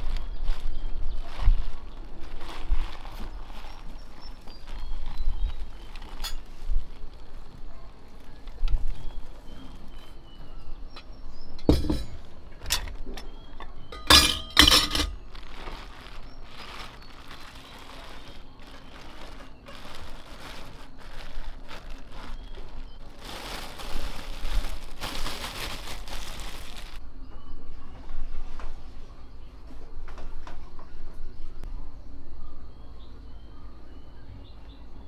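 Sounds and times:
plastic bag crinkling: 0.0s - 10.0s, 11.6s - 27.0s
metal canister clinking: 11.6s - 15.2s.

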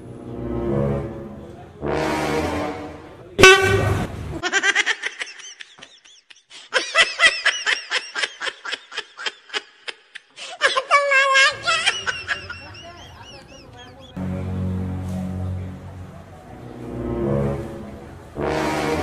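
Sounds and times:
trumpet-like horn blast: 0.4s - 4.1s, 14.2s - 19.0s.

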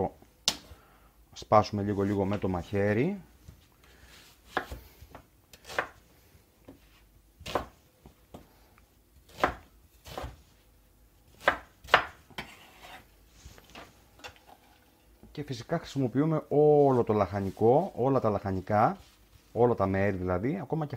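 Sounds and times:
knife chopping on wooden board: 4.5s - 6.0s, 7.4s - 8.5s, 9.3s - 10.4s, 11.3s - 13.0s.

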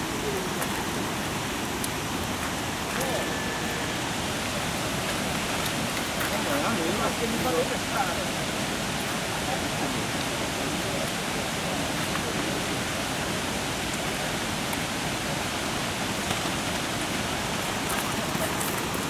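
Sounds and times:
flowing water rushing: 0.0s - 19.0s.

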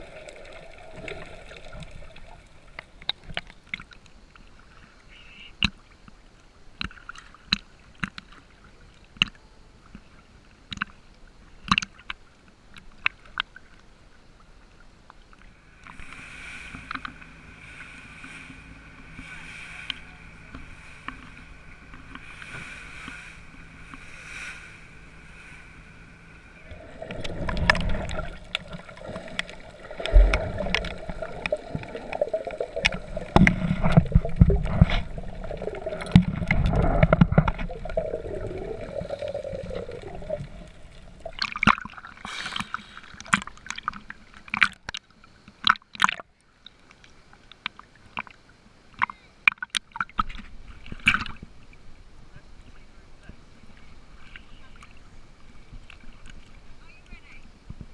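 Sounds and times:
water slapping and splashing: 0.0s - 4.0s, 15.8s - 46.3s
underwater rumbling and bubbling: 0.0s - 4.8s, 14.5s - 46.8s
faint steady hum: 0.0s - 57.9s.

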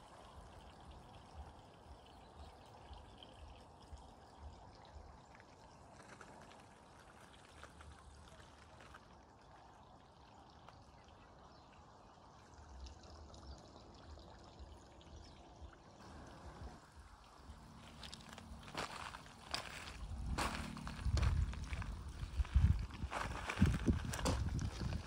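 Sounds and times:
faint water trickle: 0.0s - 25.0s
wind rumble on microphone: 17.6s - 25.0s.

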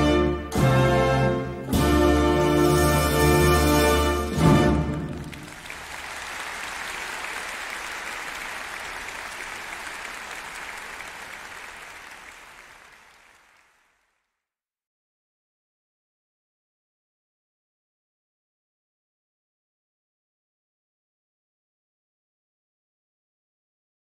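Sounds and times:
audience applauding: 4.4s - 14.3s.

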